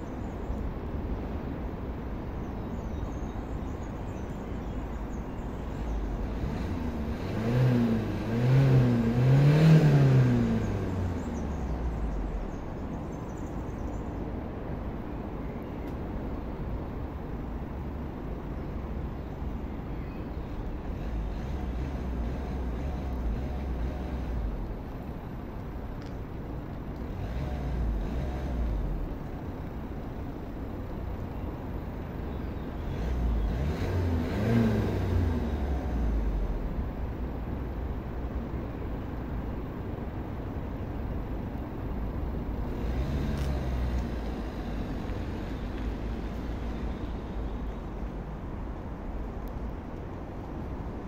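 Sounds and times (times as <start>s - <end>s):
diesel car engine revving: 5.8s - 12.7s, 20.6s - 26.0s, 26.8s - 39.6s, 41.1s - 49.2s.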